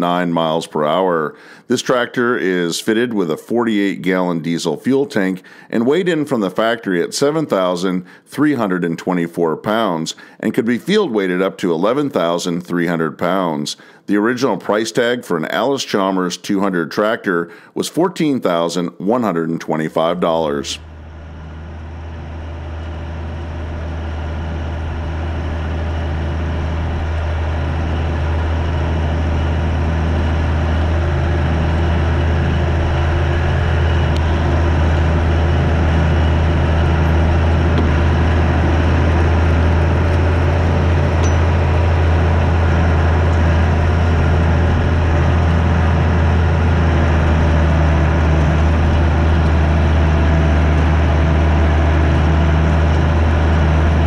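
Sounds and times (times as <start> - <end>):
tractor diesel engine humming: 19.9 - 54.0.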